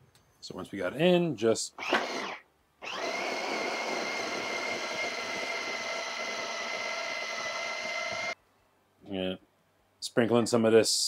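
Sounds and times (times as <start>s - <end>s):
food processor motor whining: 1.8s - 8.4s.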